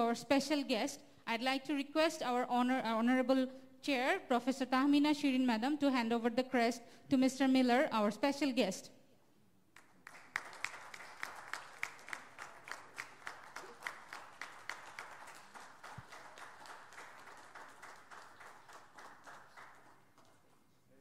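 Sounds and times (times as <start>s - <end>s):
audience applauding: 9.8s - 20.6s.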